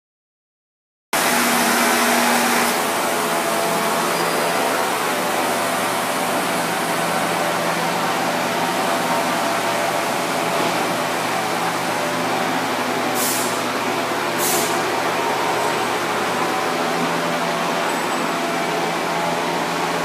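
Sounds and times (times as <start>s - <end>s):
machinery hum and rushing: 1.2s - 20.0s
short high hisses: 13.2s - 13.7s, 14.4s - 14.8s.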